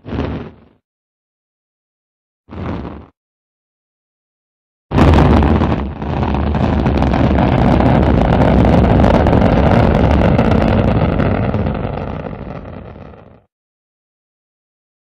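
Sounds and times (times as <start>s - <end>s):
rocket engine thrust with crackle: 0.0s - 0.8s, 2.5s - 3.2s, 4.9s - 13.5s.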